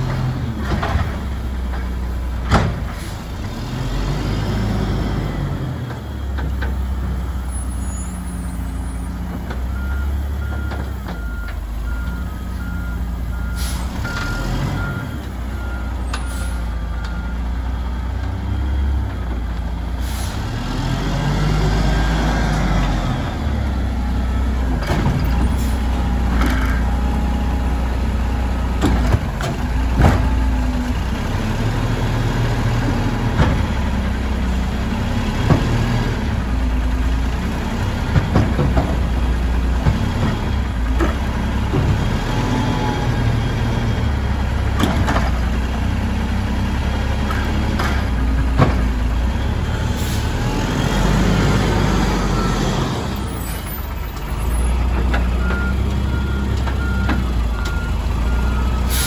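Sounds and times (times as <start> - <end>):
diesel engine running: 0.0 - 59.0
truck backup alarm beeping: 7.4 - 19.1, 49.7 - 59.0.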